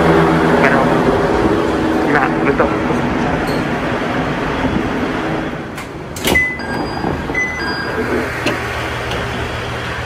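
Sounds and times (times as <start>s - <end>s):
railcar engine humming: 0.0s - 10.0s
two-note door chime: 6.3s - 8.3s.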